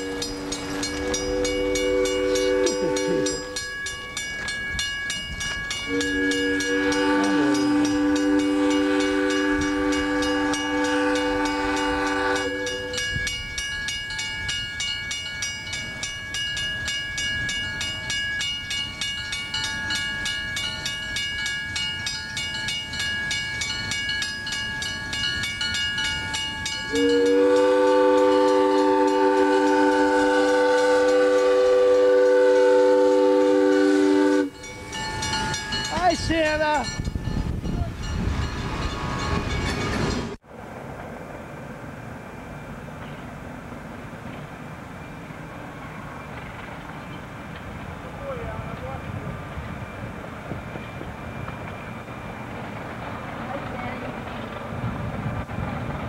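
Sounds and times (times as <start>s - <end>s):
train horn blasts: 0.0s - 3.8s, 5.8s - 13.3s, 26.9s - 34.7s
crossing bell ringing: 0.0s - 40.4s, 48.2s - 54.3s.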